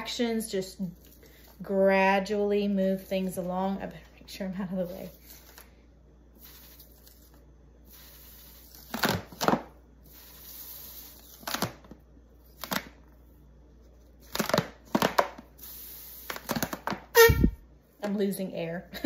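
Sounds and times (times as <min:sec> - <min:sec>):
rubber balloon squeaking: 0:16.4 - 0:17.6.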